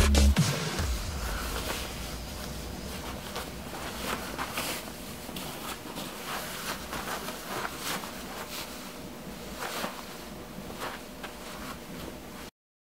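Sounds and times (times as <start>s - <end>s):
steady hiss: 0.6s - 11.9s
feet shifting on carpet: 0.8s - 12.2s.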